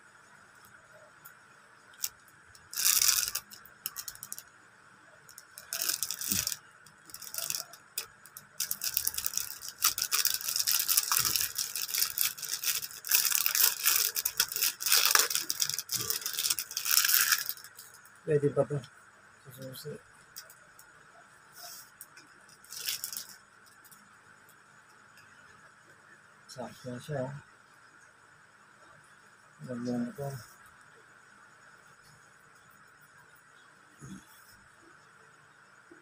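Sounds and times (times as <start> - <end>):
plastic packet crinkling: 2.0 - 4.4, 5.3 - 18.0, 22.5 - 24.0.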